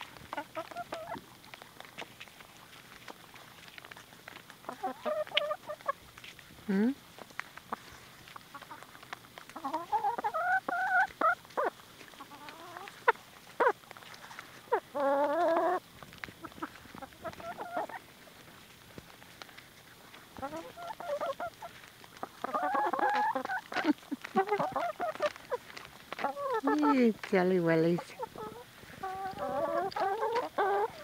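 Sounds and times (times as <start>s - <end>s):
hens clucking: 0.0s - 6.1s, 7.2s - 31.0s
beaks pecking: 7.2s - 31.0s
hens drawn-out calls: 9.6s - 13.8s, 14.6s - 18.1s, 20.3s - 31.0s.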